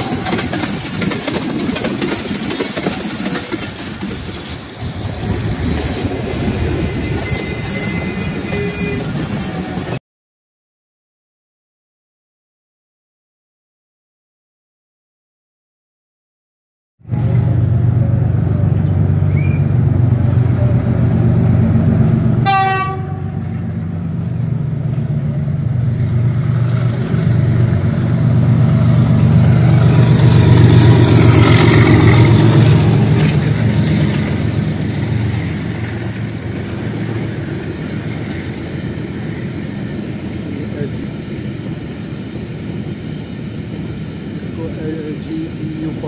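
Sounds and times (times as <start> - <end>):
train coaches rolling: 0.0 - 10.0, 17.1 - 46.0
train horn toot: 6.8 - 9.2, 22.4 - 23.5
locomotive engine drone: 17.0 - 46.0.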